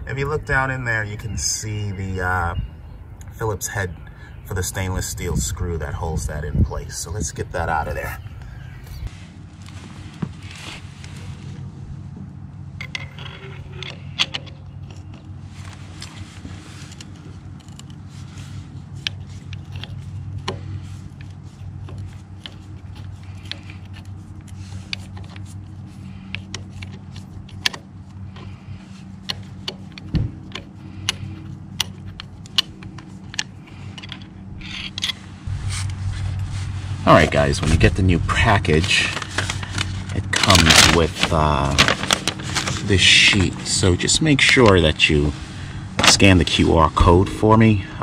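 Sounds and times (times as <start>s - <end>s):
steady low hum: 0.0s - 48.0s
screwdriver clicking and scraping metal: 29.2s - 35.2s.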